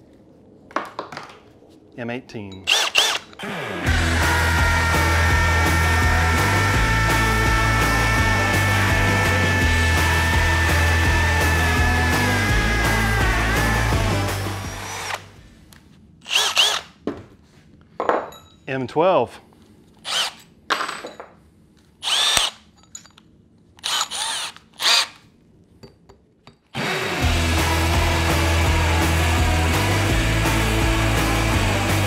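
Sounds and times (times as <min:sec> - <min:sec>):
hammer drill drilling into concrete: 0:02.7 - 0:15.3, 0:16.2 - 0:16.9, 0:20.0 - 0:20.4, 0:22.0 - 0:22.6, 0:23.8 - 0:25.2.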